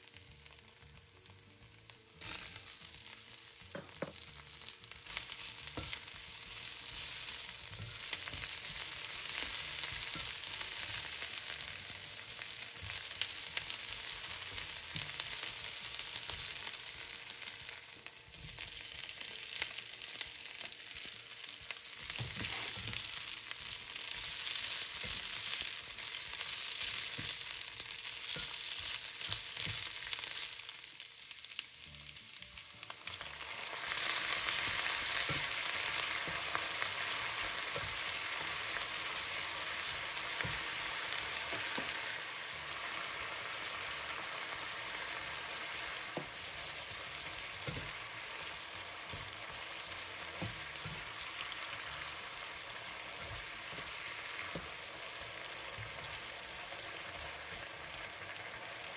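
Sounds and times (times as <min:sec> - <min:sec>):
chicken and onion sizzling in pan: 0:00.0 - 0:58.9
spatula tapping and scraping pan: 0:05.1 - 0:11.2, 0:21.9 - 0:23.2, 0:24.1 - 0:30.3, 0:34.1 - 0:42.0, 0:46.1 - 0:48.1, 0:49.0 - 0:51.6.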